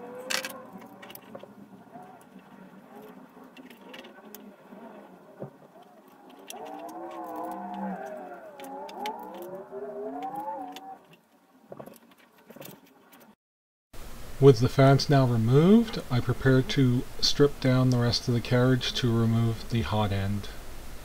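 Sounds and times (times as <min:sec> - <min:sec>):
wavering voice-like hum: 0:01.8 - 0:11.1.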